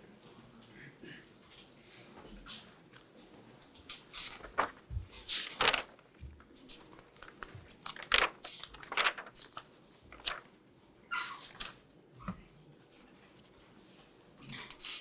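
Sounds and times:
paper pages rustling and turning: 3.8 - 10.5, 11.2 - 15.0.

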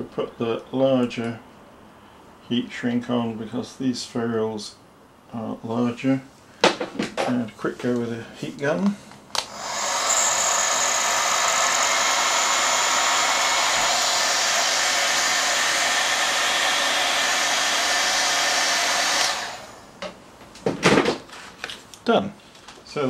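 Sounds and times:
heat gun blowing: 9.3 - 20.0.

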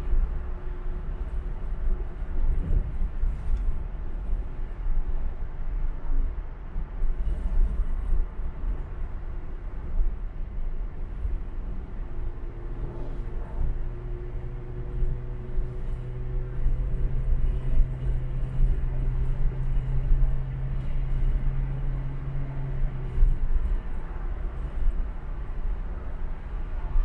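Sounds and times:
tyres and engine rumble: 0.0 - 27.0.

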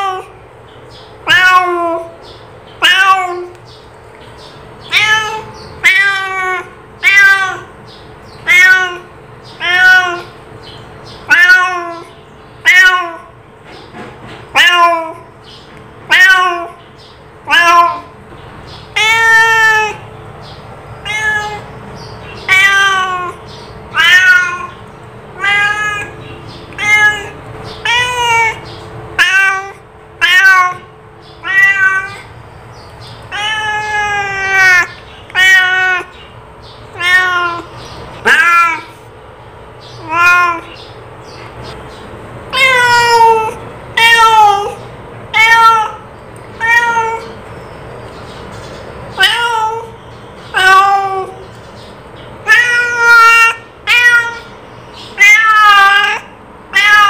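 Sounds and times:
cat meowing: 0.0 - 0.4, 1.2 - 2.2, 2.8 - 3.6, 4.8 - 7.8, 8.4 - 10.4, 11.2 - 13.4, 14.5 - 15.4, 16.0 - 16.8, 17.4 - 18.1, 18.7 - 20.1, 21.0 - 32.3, 33.1 - 36.3, 36.9 - 39.1, 39.8 - 41.8, 42.5 - 47.4, 49.2 - 51.6, 52.4 - 57.0.

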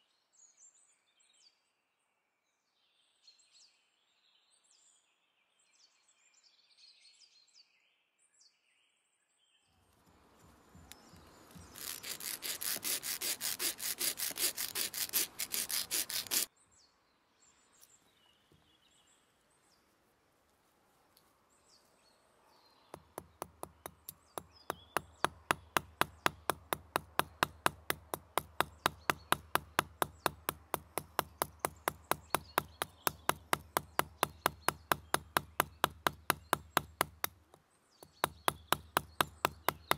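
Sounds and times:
light hammer taps: 10.4 - 13.0, 22.9 - 39.9
file rasping on metal: 11.6 - 16.5.

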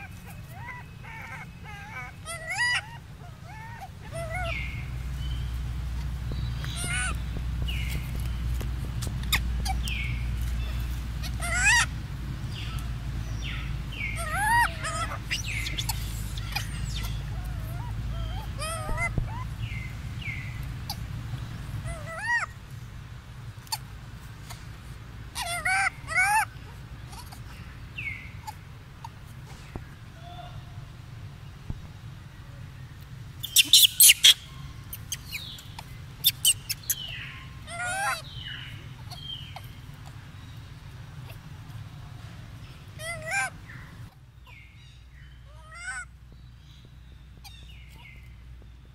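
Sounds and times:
monkey coo calls: 0.0 - 5.0, 6.6 - 8.2, 9.2 - 22.6, 25.3 - 30.9, 33.4 - 40.4, 41.1 - 44.8, 45.5 - 46.1
low background noise: 0.0 - 48.9.

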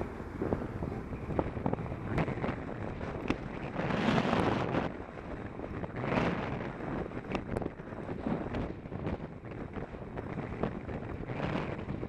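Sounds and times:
road rumble: 0.0 - 12.0
wind buffeting microphone: 0.0 - 12.0.

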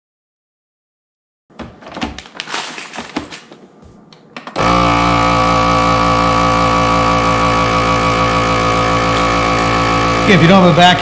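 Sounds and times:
plastic bag rustling and clicking: 1.5 - 3.7
vacuum pump humming: 4.6 - 11.0.

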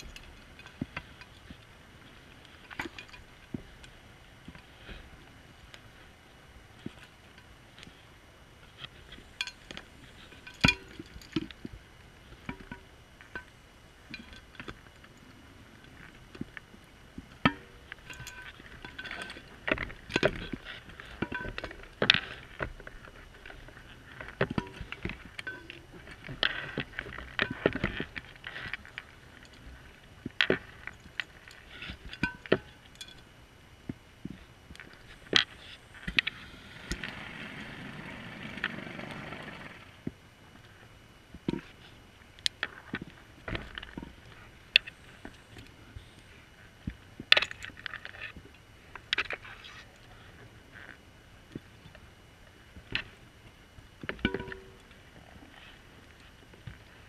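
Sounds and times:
scuba gear clicking and scraping: 0.0 - 6.1, 8.6 - 33.3, 47.3 - 51.0
faint low hum: 0.0 - 57.0
faint low rumble: 0.0 - 57.0.

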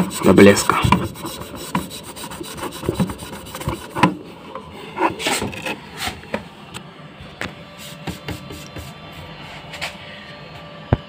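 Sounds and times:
sponge scrubbing glass: 0.0 - 4.2.

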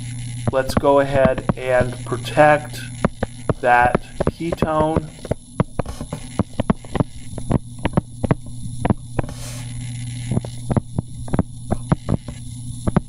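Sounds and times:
low electrical hum: 0.0 - 13.0
stylus tapping on tablet screen: 3.0 - 9.4.

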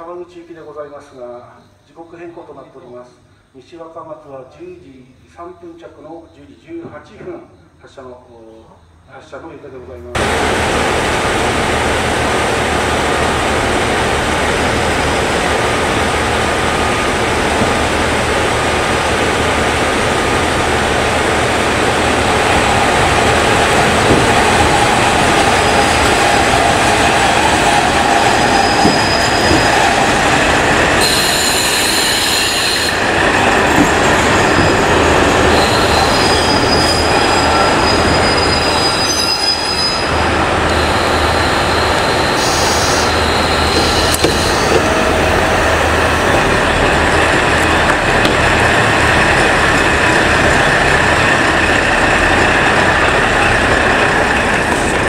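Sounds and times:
diesel railcar engine running: 10.2 - 55.0
train wheels rolling: 10.2 - 55.0
high-pitched brake squeals: 28.4 - 29.8, 31.0 - 33.0, 35.5 - 46.0.

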